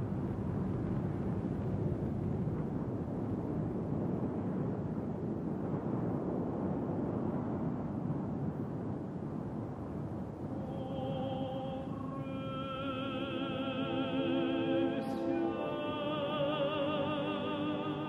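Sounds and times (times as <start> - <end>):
fire burning with deep rush: 0.0 - 12.6.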